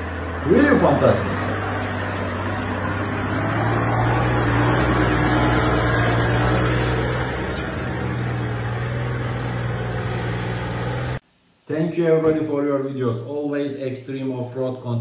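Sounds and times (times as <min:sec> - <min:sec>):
truck engine under load: 0:00.0 - 0:11.2.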